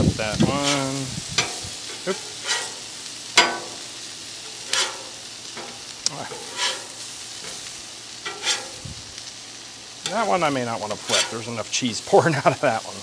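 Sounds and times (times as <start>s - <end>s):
tortillas sizzling on griddle: 0.0s - 13.0s
spatula clacking on metal griddle: 0.4s - 8.8s, 10.0s - 11.4s.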